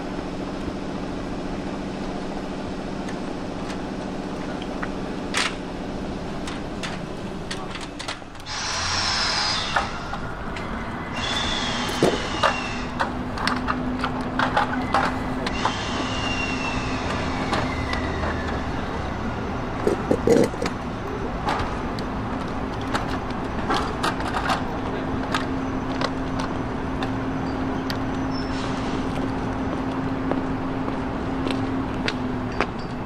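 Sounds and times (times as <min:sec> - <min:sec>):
falling whistle-like tones: 0:15.9 - 0:19.0.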